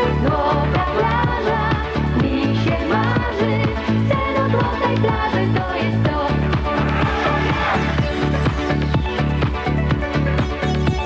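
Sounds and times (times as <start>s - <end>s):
electronic dance music: 1.0s - 11.0s.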